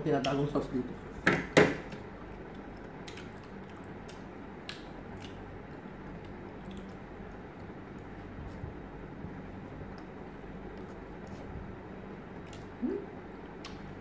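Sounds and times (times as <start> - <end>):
steady low hum: 0.0 - 14.0
chewing: 2.3 - 5.5, 6.1 - 8.6.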